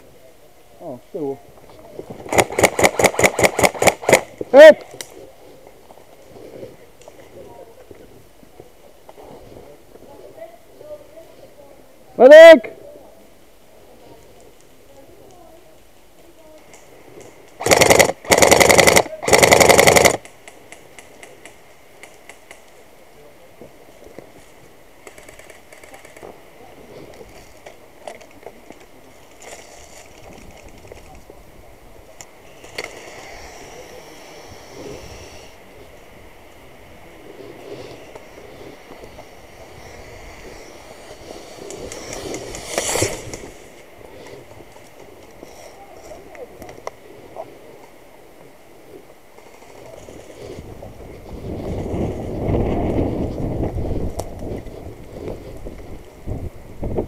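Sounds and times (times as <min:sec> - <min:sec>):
airsoft rifle firing bursts: 0:02.3 - 0:04.3, 0:17.6 - 0:20.3
sharp clicks: 0:02.3 - 0:05.1, 0:16.6 - 0:22.8.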